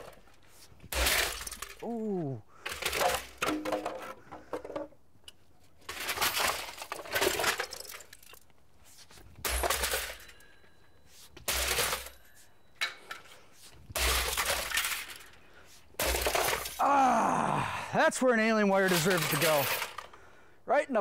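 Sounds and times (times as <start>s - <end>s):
rattling metal debris: 0.0s - 2.0s, 2.6s - 4.9s, 5.8s - 8.5s, 9.4s - 16.9s, 18.7s - 20.2s
sledgehammer smashing computer: 0.9s - 1.8s, 9.4s - 10.3s, 11.4s - 12.2s, 13.9s - 15.2s, 16.0s - 16.8s.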